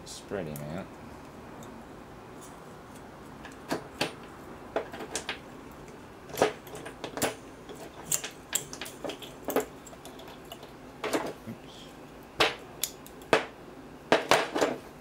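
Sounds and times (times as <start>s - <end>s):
metal relay parts clicking: 3.4s - 11.3s, 12.4s - 13.4s.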